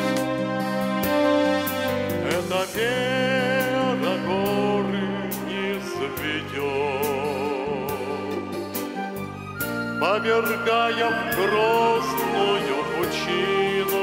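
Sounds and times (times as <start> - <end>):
instrumental chords and melody: 0.0 - 14.0.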